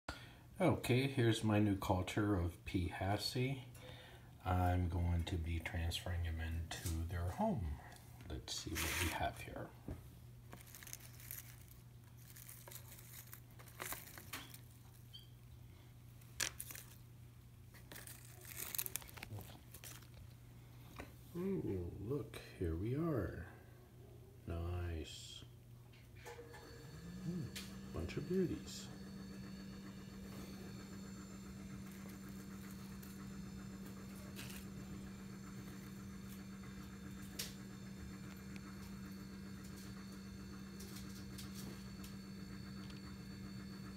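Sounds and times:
steady low hum: 0.1 - 43.9
dry leaves rustling: 17.9 - 20.0.

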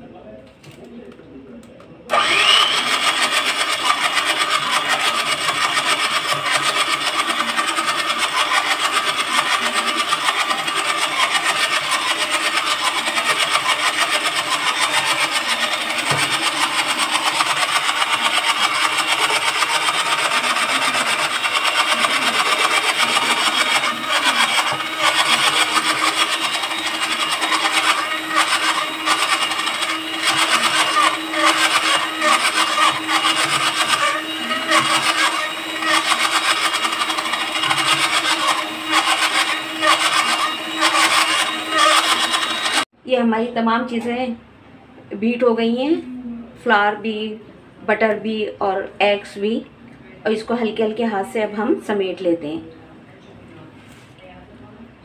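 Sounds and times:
electric hand mixer whirring: 2.1 - 42.9.

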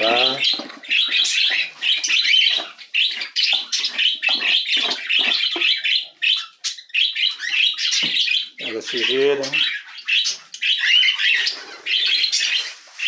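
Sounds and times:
budgerigars chattering and chirping: 0.0 - 13.0
scraping wood shavings: 11.2 - 13.0.

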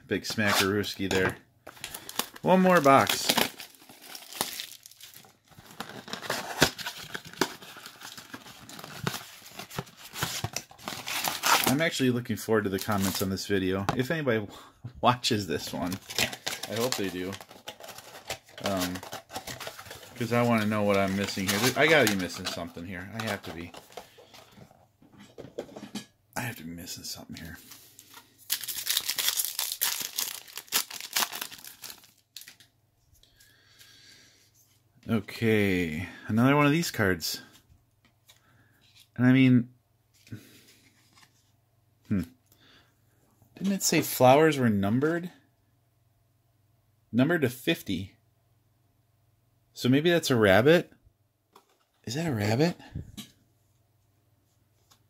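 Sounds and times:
foil wrapper tearing and crinkling: 1.7 - 11.8, 15.8 - 22.6, 28.5 - 32.6.

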